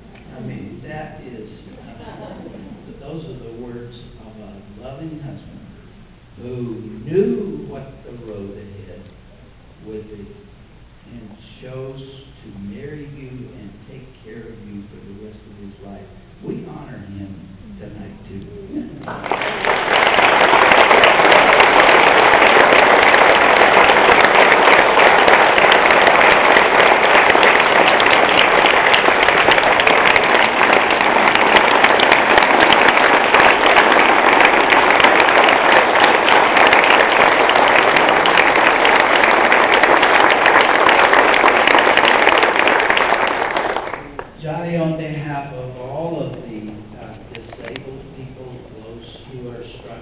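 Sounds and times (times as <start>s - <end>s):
audience applauding: 19.0s - 44.4s.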